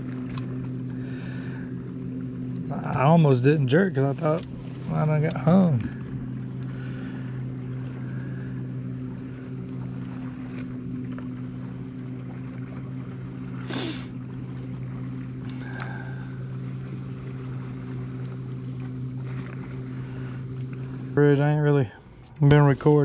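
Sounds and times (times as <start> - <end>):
boat motor humming: 0.0 - 23.0.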